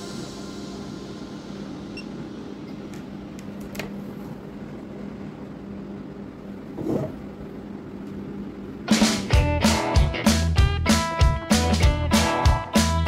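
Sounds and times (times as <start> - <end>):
steady background hum and hiss: 0.0 - 10.0.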